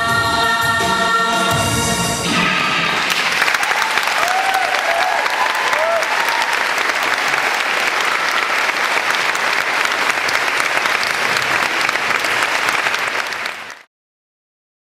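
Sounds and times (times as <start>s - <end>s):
audience applauding: 3.0s - 13.9s.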